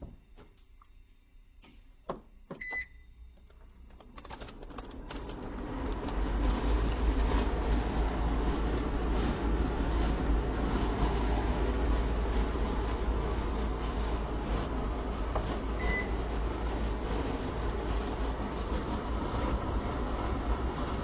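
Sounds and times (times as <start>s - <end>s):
air purifier fan rushing: 2.6s - 21.0s
short beep: 15.8s - 16.2s.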